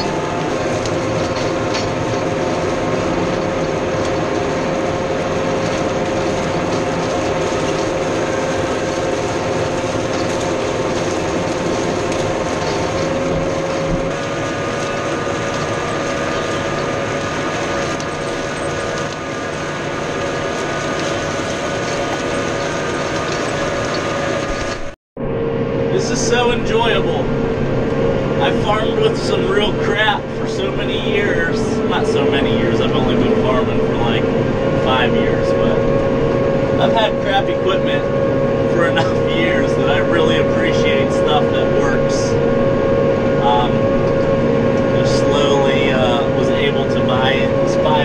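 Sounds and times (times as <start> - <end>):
rattling machinery clatter: 0.0 - 25.0
tractor diesel engine under load: 0.0 - 48.0.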